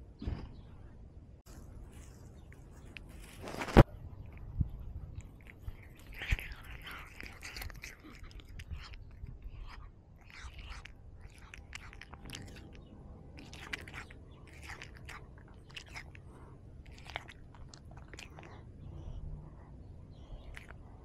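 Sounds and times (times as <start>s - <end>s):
low steady rumble: 0.6s - 21.0s
crunching and rustling: 1.5s - 4.5s, 5.2s - 9.4s, 10.2s - 12.8s, 13.4s - 18.6s.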